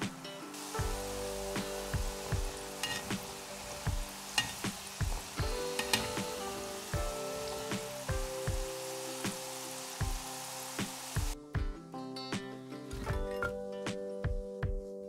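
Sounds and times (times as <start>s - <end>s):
dough balls sizzling in oil: 0.0s - 11.4s
metal skimmer stirring in oil: 2.8s - 3.7s, 4.3s - 6.6s.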